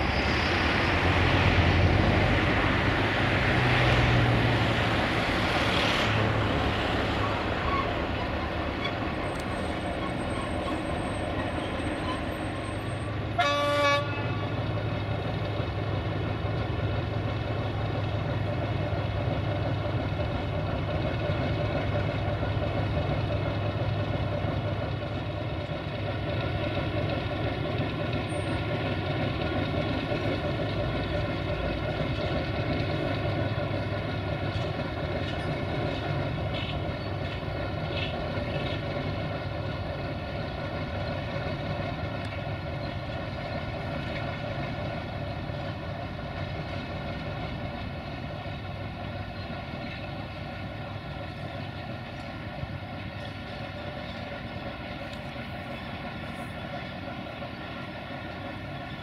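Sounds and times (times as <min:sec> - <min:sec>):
locomotive diesel engine running: 0:00.0 - 0:59.0
locomotive horn blast: 0:13.3 - 0:14.6.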